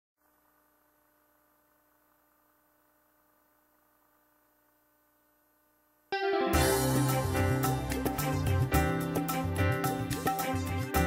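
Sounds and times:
faint electrical hum and hiss: 0:00.2 - 0:06.4.

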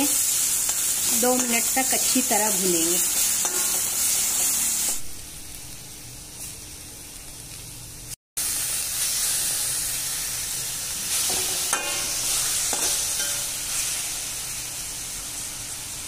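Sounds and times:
food sizzling in hot oil: 0:00.0 - 0:16.0
metal spatula scraping wok: 0:00.1 - 0:05.0, 0:11.0 - 0:14.1.

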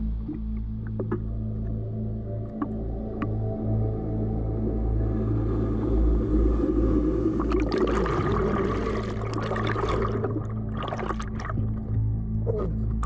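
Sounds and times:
ambient music drone: 0:00.0 - 0:13.0
ocean wave breaking: 0:06.1 - 0:11.5
sharp water splashes: 0:07.4 - 0:11.8.

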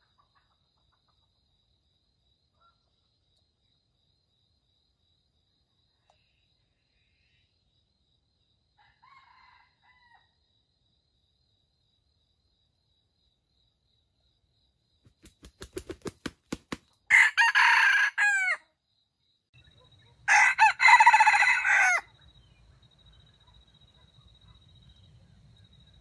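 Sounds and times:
rooster crowing: 0:08.8 - 0:10.4, 0:17.1 - 0:18.7, 0:20.3 - 0:22.1.

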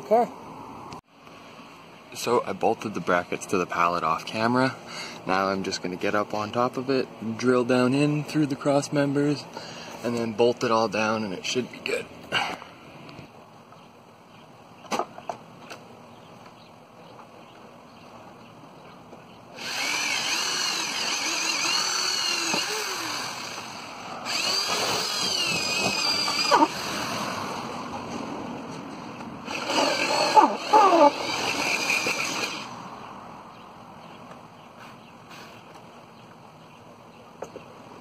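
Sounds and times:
electric drill boring wood: 0:19.6 - 0:27.9, 0:29.4 - 0:32.9.

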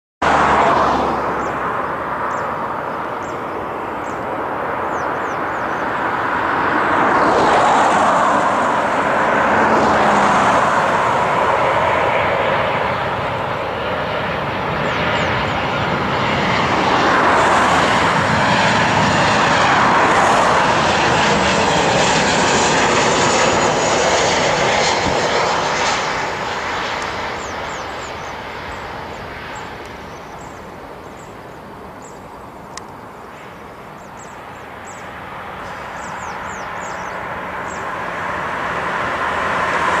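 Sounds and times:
jet engines roaring: 0:00.2 - 0:40.0.

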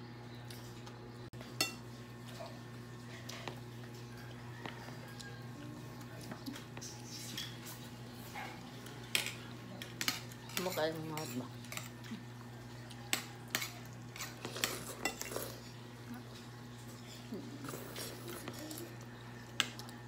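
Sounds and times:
spoons clinking on bowls: 0:01.5 - 0:01.9, 0:13.1 - 0:15.7.

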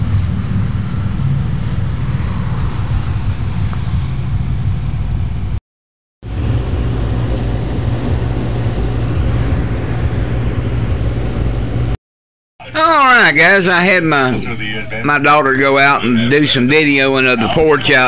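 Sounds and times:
low rumble and hiss: 0:00.0 - 0:05.6, 0:06.3 - 0:12.0, 0:12.6 - 0:18.0.

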